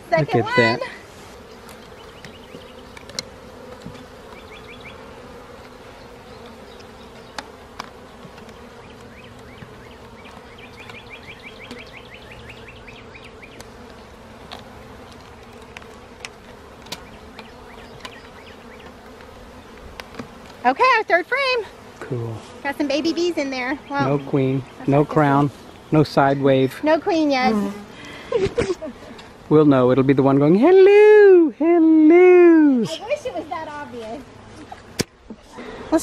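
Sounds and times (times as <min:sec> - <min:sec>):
bees buzzing: 0:00.0 - 0:36.0
small clicks and knocks: 0:01.6 - 0:04.4, 0:06.4 - 0:11.0, 0:13.6 - 0:20.6.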